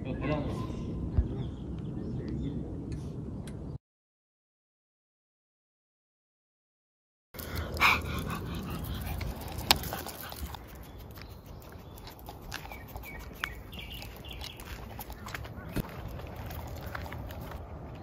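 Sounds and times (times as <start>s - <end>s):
walking and rustling: 8.7s - 18.0s.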